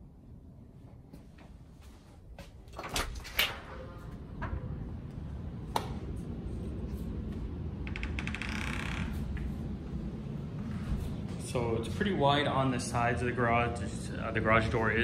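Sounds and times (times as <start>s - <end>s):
low rumble: 3.8s - 15.0s.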